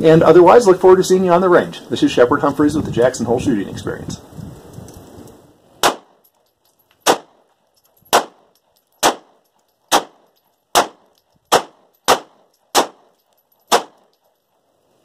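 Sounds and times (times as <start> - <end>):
pistol shots: 5.8 - 6.2, 7.0 - 14.2.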